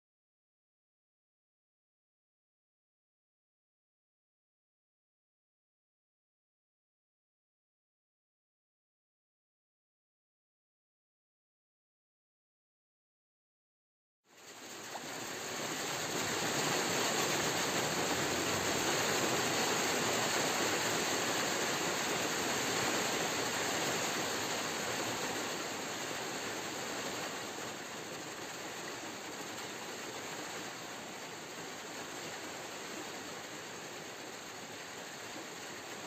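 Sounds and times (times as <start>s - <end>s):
steady rushing hiss: 14.3s - 36.0s.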